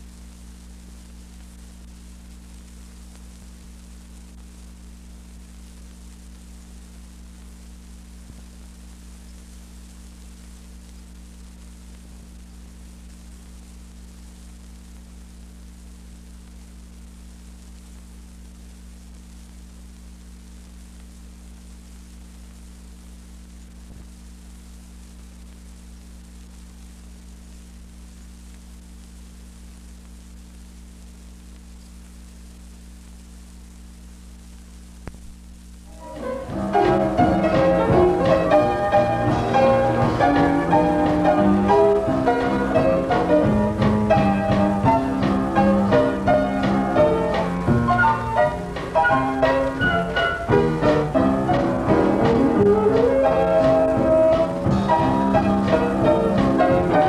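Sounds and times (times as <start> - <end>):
electrical hum: 0.0 - 57.0
faint ticks: 28.2 - 33.8.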